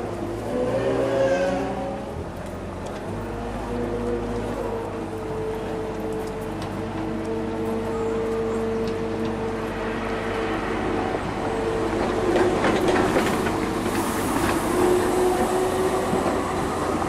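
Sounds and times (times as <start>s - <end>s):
tram passing on rails: 0.0s - 17.0s
wheels clicking on track: 2.3s - 17.0s.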